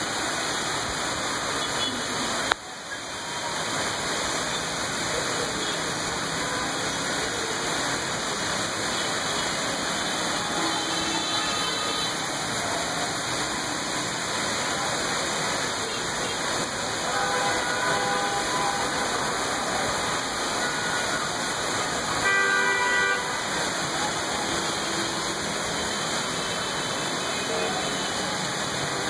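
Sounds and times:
heavy rain hissing: 0.0s - 29.0s
vehicle horns honking: 17.1s - 19.2s, 22.2s - 23.6s.

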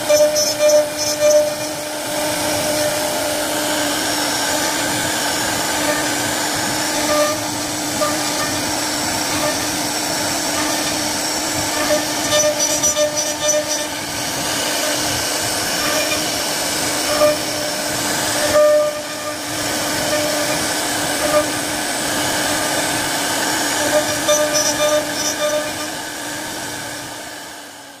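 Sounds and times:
router bit cutting wood: 0.0s - 27.8s
router spindle whine: 0.0s - 28.0s.

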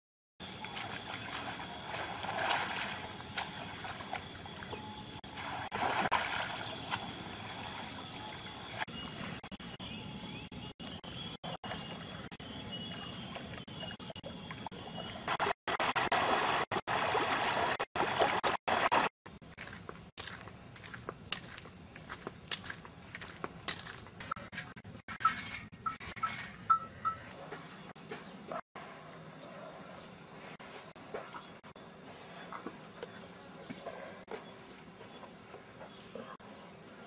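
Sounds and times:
river water trickling and splashing: 0.4s - 8.0s, 15.4s - 19.1s.

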